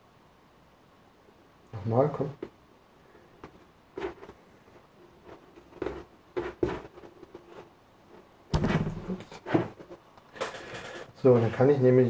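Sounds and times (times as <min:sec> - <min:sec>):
cloth rustling and scraping: 0:03.4 - 0:11.8.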